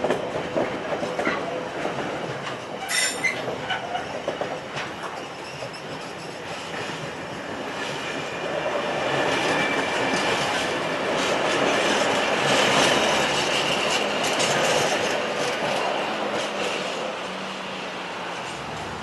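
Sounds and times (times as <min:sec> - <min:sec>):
train wheels clattering over rails: 0:00.0 - 0:19.0
high wheel squeal: 0:02.8 - 0:03.4.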